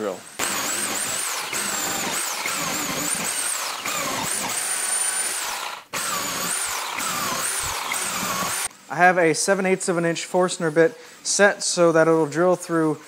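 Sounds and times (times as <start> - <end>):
drill boring into plywood: 0.4 - 8.7.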